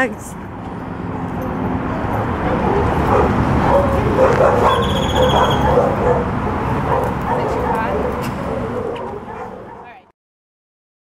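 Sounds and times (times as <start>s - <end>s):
dog vocalizing in short calls: 3.7s - 6.3s.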